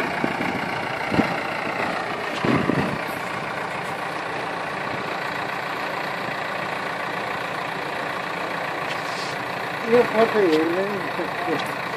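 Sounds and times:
diesel engine running: 0:00.0 - 0:11.9.

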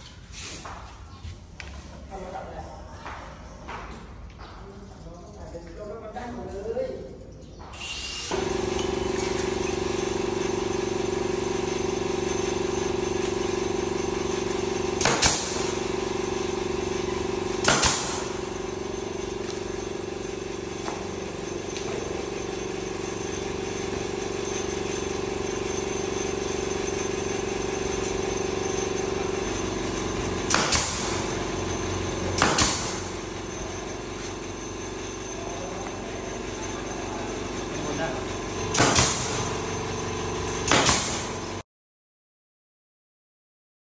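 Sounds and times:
pneumatic nailer firing: 0:07.7 - 0:33.6, 0:38.6 - 0:41.6
air compressor humming: 0:07.7 - 0:41.6.

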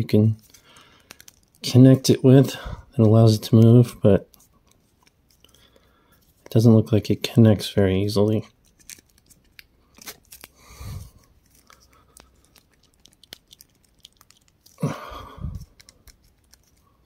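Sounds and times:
plastic parts clicking and rubbing: 0:00.4 - 0:01.7, 0:08.5 - 0:14.8, 0:15.4 - 0:17.0
rustling: 0:08.5 - 0:17.0.

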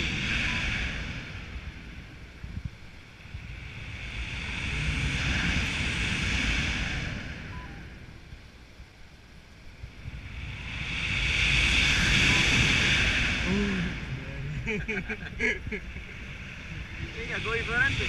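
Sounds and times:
wind rushing over microphone: 0:00.0 - 0:18.0.

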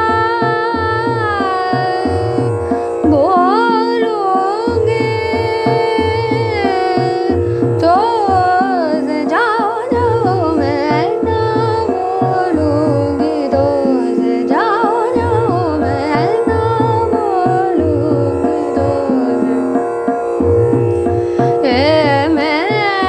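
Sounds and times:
woman singing: 0:00.0 - 0:20.2, 0:21.4 - 0:23.0
tabla rhythm: 0:00.0 - 0:23.0.

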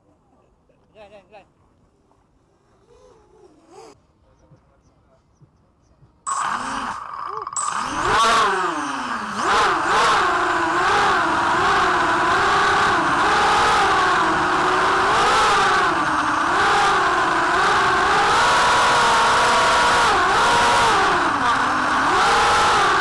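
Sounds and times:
quadcopter motors whining: 0:06.3 - 0:23.0.

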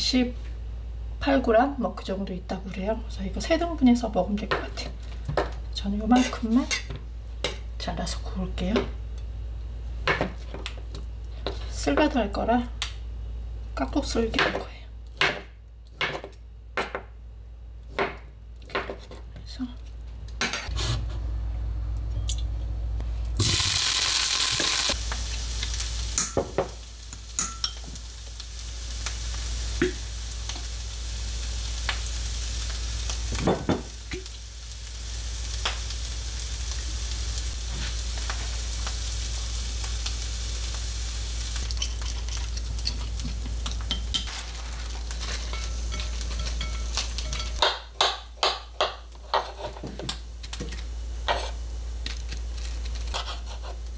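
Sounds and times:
food sizzling in oil: 0:23.4 - 0:48.3.

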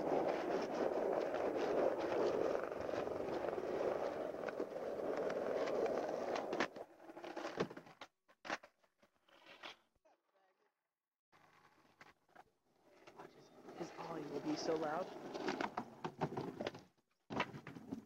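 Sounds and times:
skateboard wheels rolling on asphalt: 0:00.0 - 0:08.6, 0:11.4 - 0:18.0.

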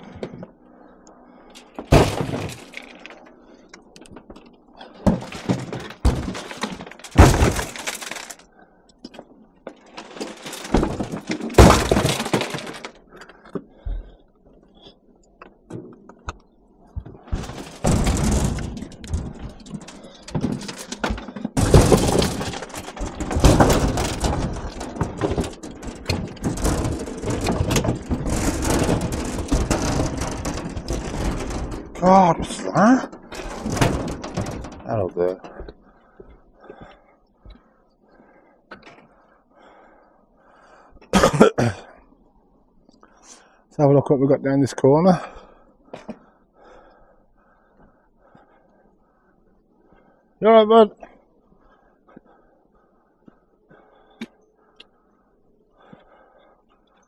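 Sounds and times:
scrap metal clanging and crashing: 0:04.9 - 0:08.4, 0:09.9 - 0:13.0, 0:17.4 - 0:35.7.

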